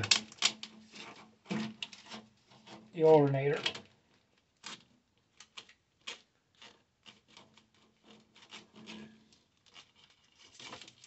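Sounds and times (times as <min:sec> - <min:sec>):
plastic loom scraping against metal: 0:00.0 - 0:03.8, 0:06.6 - 0:11.0.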